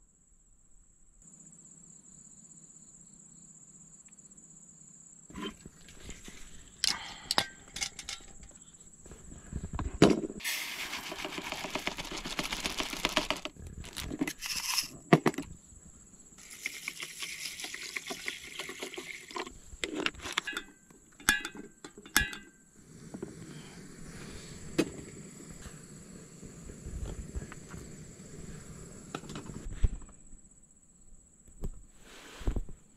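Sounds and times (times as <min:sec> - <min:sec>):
clicks and knocks of cooking gear: 0:05.4 - 0:08.6, 0:19.3 - 0:22.5
water pouring into metal tin: 0:10.4 - 0:14.9, 0:16.4 - 0:19.5.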